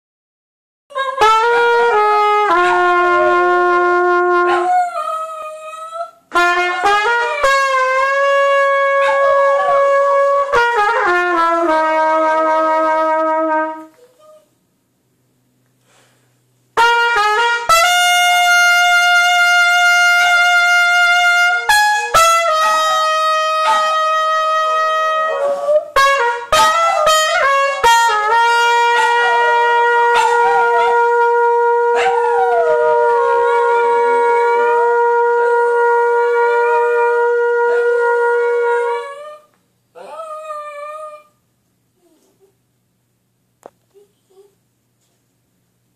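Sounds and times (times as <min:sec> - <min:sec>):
trumpet playing long notes: 0:00.9 - 0:05.0, 0:06.3 - 0:14.0, 0:16.8 - 0:39.4
dog howling: 0:08.9 - 0:10.2, 0:22.4 - 0:26.0, 0:28.8 - 0:34.8, 0:36.4 - 0:41.3.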